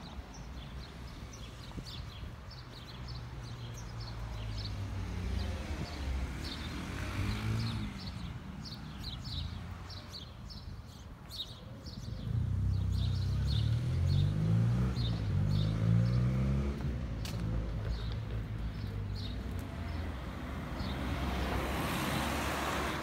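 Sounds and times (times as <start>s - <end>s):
small birds chirping: 0.0s - 23.0s
car driving past: 12.3s - 17.7s.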